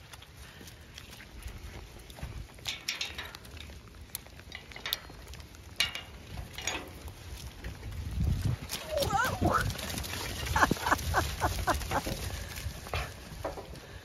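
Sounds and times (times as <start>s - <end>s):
metal gate rattling: 2.6s - 3.7s, 4.5s - 7.1s.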